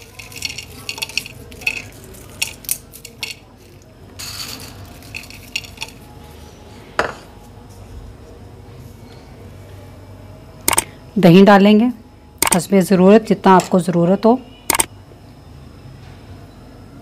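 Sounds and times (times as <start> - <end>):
crispy wafers crackling: 0.0 - 6.1.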